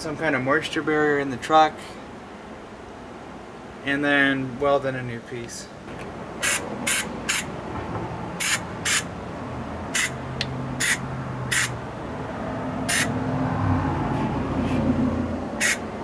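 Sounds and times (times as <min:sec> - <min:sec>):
aerosol spray hissing: 0:06.4 - 0:07.5, 0:08.4 - 0:09.1, 0:12.9 - 0:13.1, 0:15.6 - 0:15.9.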